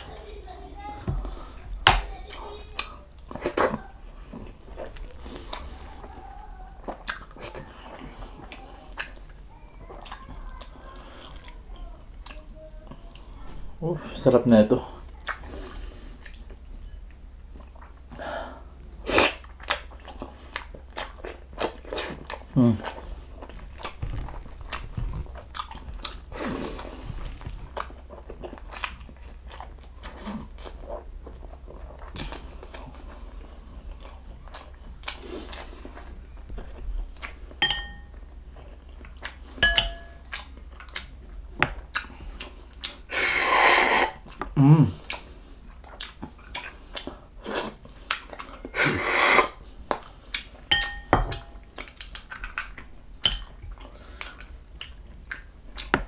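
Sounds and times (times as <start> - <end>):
chewing and biting: 6.8 - 11.6, 19.1 - 43.1, 44.2 - 48.8, 51.4 - 56.0
loud slurp: 43.1 - 44.2, 48.8 - 49.6.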